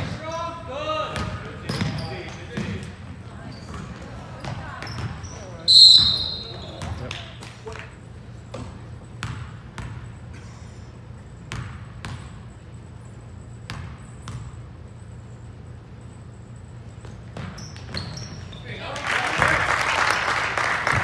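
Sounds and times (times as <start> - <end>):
basketball bouncing on court floor: 1.1 - 7.4, 8.4 - 10.2, 11.3 - 12.6, 13.6 - 14.8, 16.9 - 18.5.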